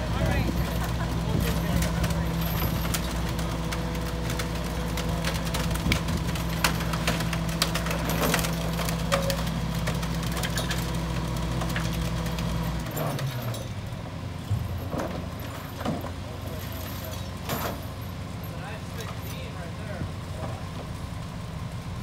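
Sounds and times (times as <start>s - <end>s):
garbage truck engine running: 0.0s - 22.0s
debris clattering into hopper: 0.2s - 13.8s.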